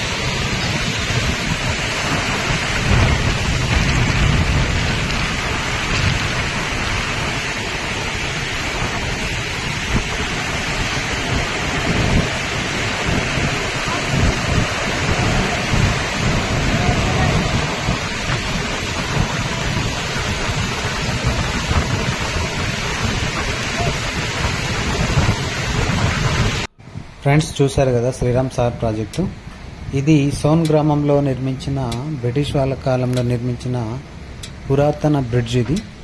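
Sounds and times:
rushing floodwater: 0:00.0 - 0:26.7
deep uneven rumble: 0:00.0 - 0:34.1.

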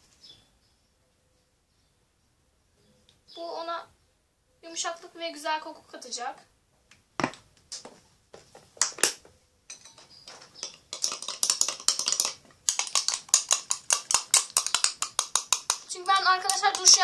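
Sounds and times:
metal spoon stirring in bowl: 0:09.7 - 0:17.0.

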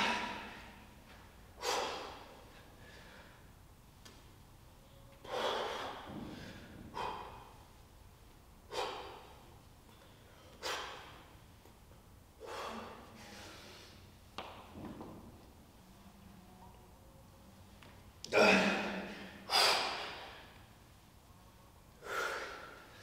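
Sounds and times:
man exhaling forcefully: 0:01.6 - 0:03.4, 0:18.3 - 0:20.5.

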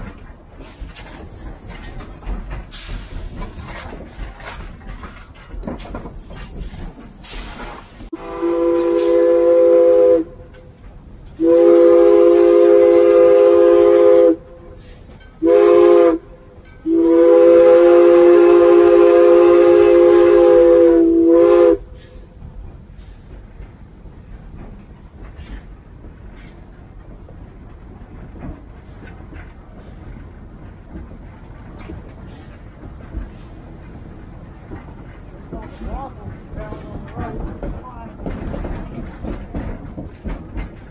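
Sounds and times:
steam locomotive chime whistle: 0:08.1 - 0:10.5, 0:11.4 - 0:22.3.

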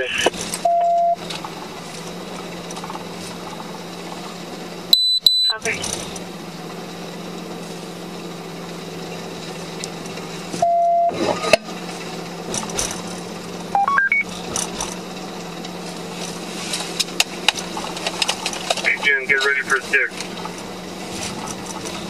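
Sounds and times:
police radio beeps: 0:00.0 - 0:01.2, 0:05.0 - 0:05.9, 0:10.6 - 0:11.6, 0:13.7 - 0:14.3, 0:18.8 - 0:20.2.

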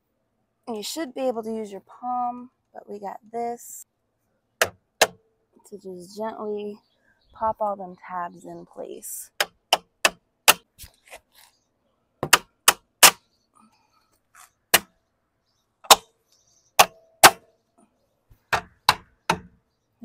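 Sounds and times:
rubber mallet knocking: 0:04.6 - 0:05.2, 0:12.2 - 0:13.2, 0:18.5 - 0:19.6.

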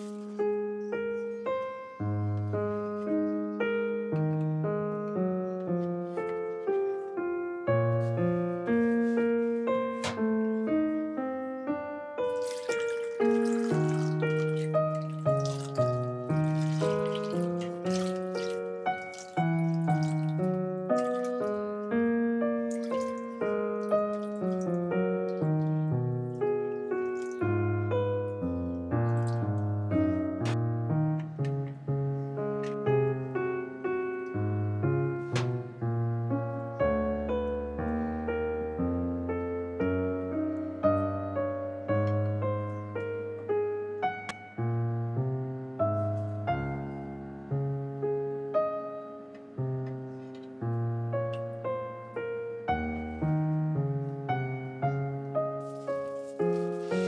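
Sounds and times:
gentle piano melody: 0:00.0 - 0:57.0.

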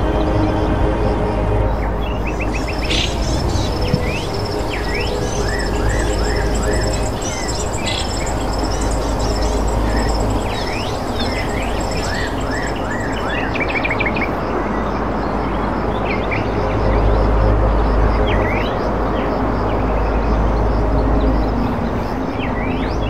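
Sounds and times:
steady low rumble: 0:00.0 - 0:13.8
birds chirping and calling: 0:02.2 - 0:13.9.

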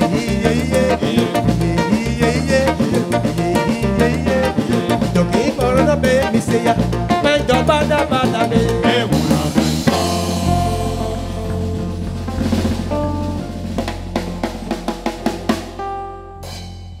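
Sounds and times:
electric guitar and bass chord: 0:00.0 - 0:17.0
drum roll with cymbal hits: 0:09.2 - 0:17.0.

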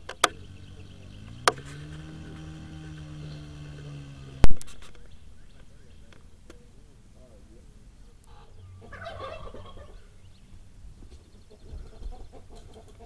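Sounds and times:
farmyard fowl calling: 0:08.2 - 0:10.4, 0:11.4 - 0:13.0.

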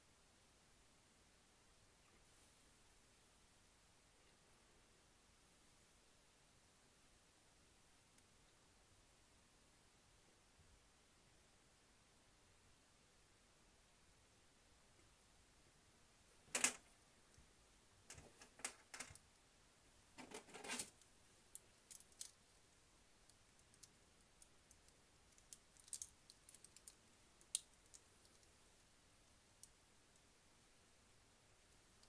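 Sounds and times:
small parts clicking on metal bench: 0:16.5 - 0:16.8.

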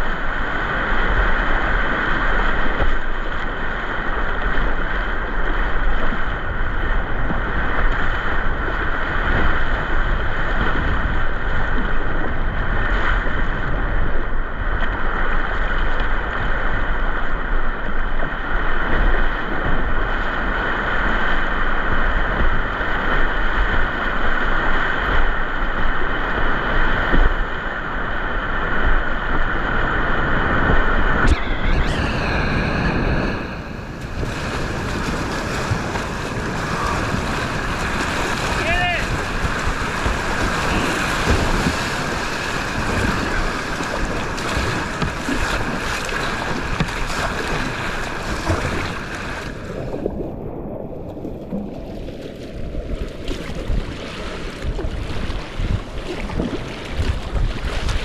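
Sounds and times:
whitewater rushing through rapids: 0:15.0 - 0:50.2.

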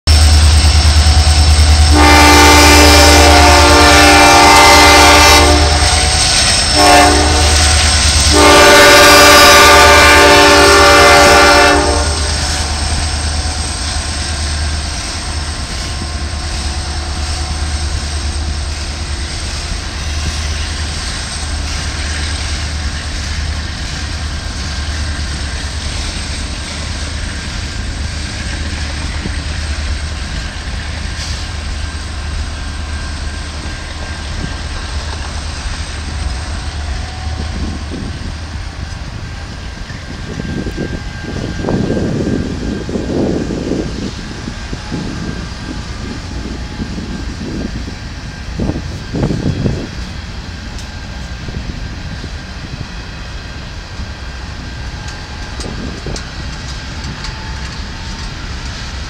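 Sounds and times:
diesel locomotive rumble: 0:00.1 - 0:59.0
locomotive air horn blasts: 0:01.8 - 0:13.6.

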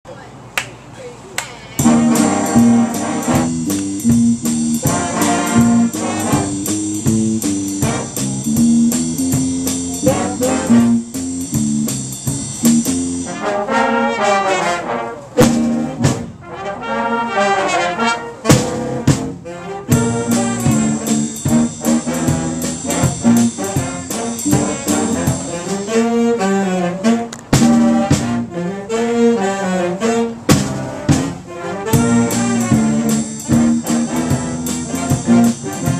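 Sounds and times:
drum kit cymbals: 0:01.8 - 0:13.4, 0:18.5 - 0:26.2, 0:30.5 - 0:35.9
big band horns playing jazz: 0:01.8 - 0:35.9.

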